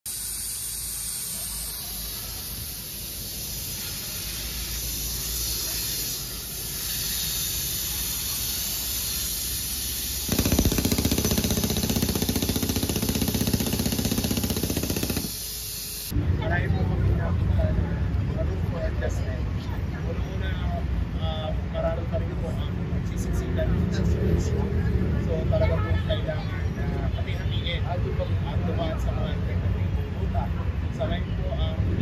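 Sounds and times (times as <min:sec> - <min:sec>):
compressed air hissing: 0:00.1 - 0:16.1
jackhammer rattling: 0:10.2 - 0:15.8.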